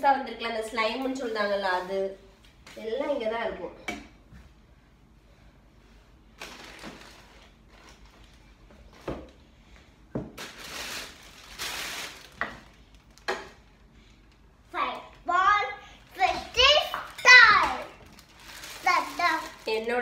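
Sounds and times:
plastic bags rustling: 6.3s - 9.1s, 10.2s - 15.0s, 16.0s - 20.0s.

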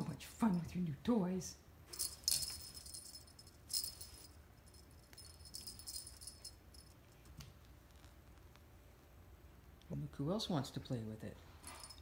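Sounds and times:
cat toy jingling: 1.9s - 7.0s.

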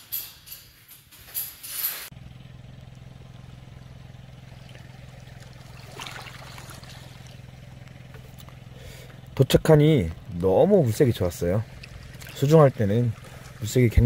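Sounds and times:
underwater water noise: 4.4s - 8.0s, 11.0s - 14.0s.

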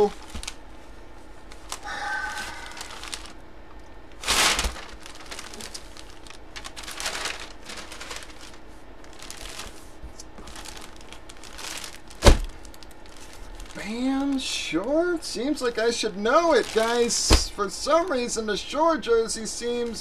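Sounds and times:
paper crumpling: 0.0s - 0.6s, 1.5s - 3.4s, 4.2s - 14.5s, 16.4s - 17.4s
plastic bag crinkling: 0.0s - 0.7s, 1.4s - 3.4s, 4.1s - 14.7s, 15.7s - 17.6s.

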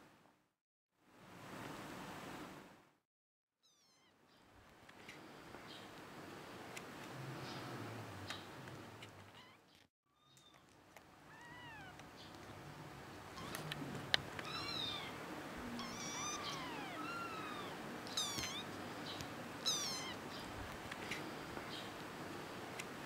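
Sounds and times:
kittens mewing: 9.2s - 12.6s, 13.2s - 21.2s.

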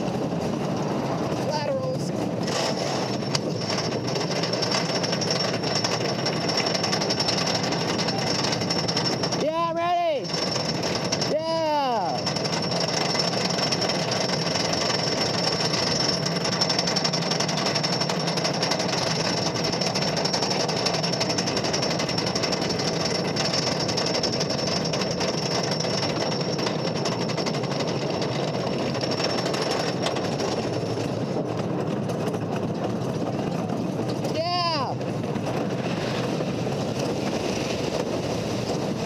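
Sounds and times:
roller coaster rattling on track: 0.0s - 39.0s.

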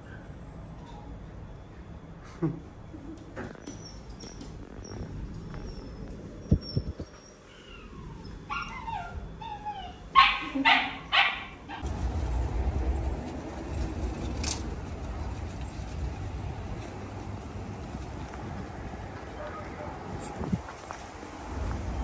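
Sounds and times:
dog whining: 3.5s - 11.8s
dog barking: 10.2s - 11.8s
low rumbling noise: 11.6s - 22.0s.

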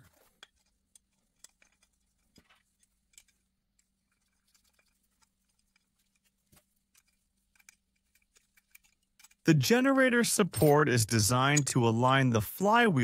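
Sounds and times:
light metal clicks and taps: 0.0s - 9.4s.

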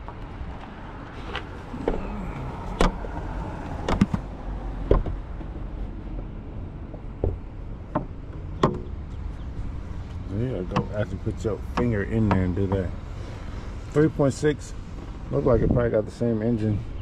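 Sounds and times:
sharp clicks and knocks: 3.8s - 4.3s, 6.9s - 9.0s, 11.7s - 12.9s.

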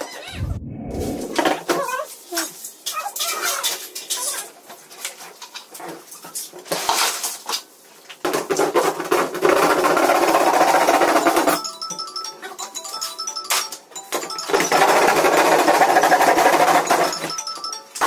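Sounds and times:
background music: 11.4s - 18.0s.

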